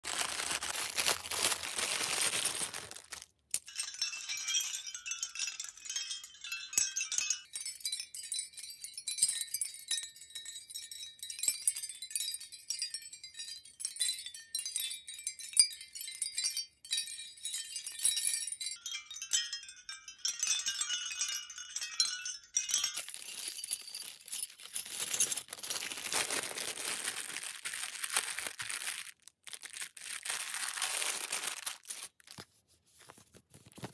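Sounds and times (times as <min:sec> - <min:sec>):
plastic packaging crinkling: 0:00.0 - 0:03.7, 0:22.7 - 0:32.5
shell mobile tinkling: 0:03.0 - 0:27.9.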